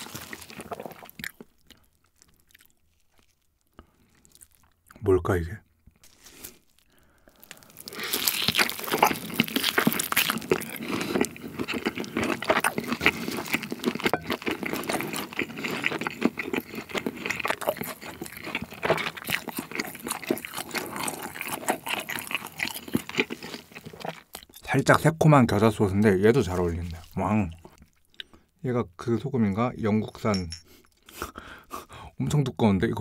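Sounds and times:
person biting and chewing steak: 0:00.0 - 0:05.0, 0:05.9 - 0:24.6.

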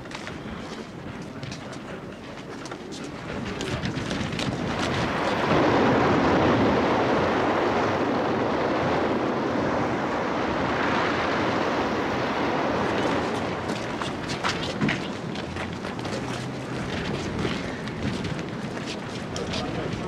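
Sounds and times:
surf breaking over rocks: 0:04.3 - 0:15.3.

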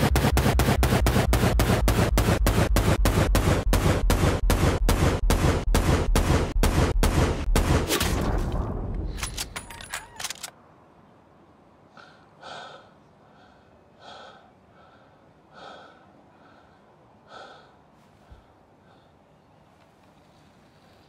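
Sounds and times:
rumble of gunfire: 0:00.0 - 0:09.2
man breathing heavily: 0:11.9 - 0:19.4.

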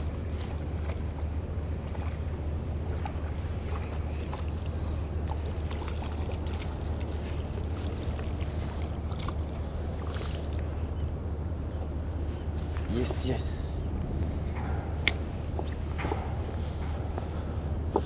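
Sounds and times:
steady low rumble: 0:00.0 - 0:18.0.

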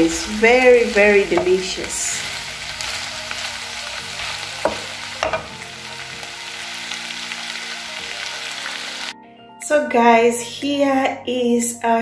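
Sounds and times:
food sizzling in a frying pan: 0:00.0 - 0:09.2.

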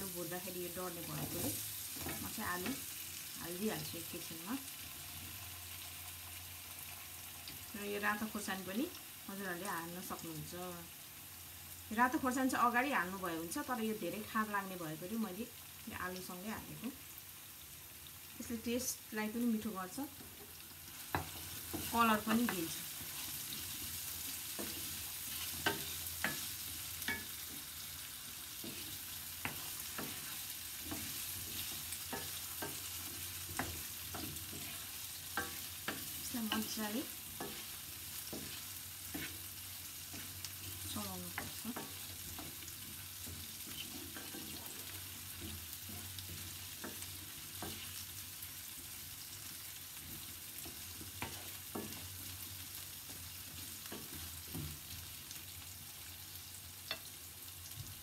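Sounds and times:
potatoes sizzling in oil: 0:00.0 - 0:58.0
spatula scraping and knocking pan: 0:20.2 - 0:48.1.

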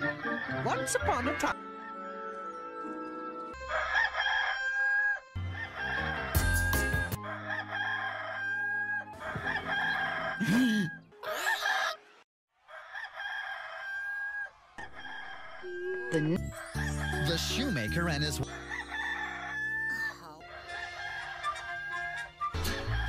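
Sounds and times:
rooster crowing: 0:03.6 - 0:12.0, 0:12.6 - 0:23.0.

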